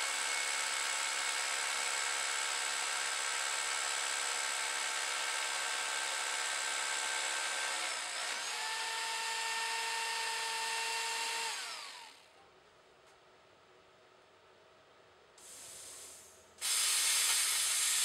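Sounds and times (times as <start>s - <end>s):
hammer drill boring into stone: 2.6s - 12.2s, 17.0s - 18.0s.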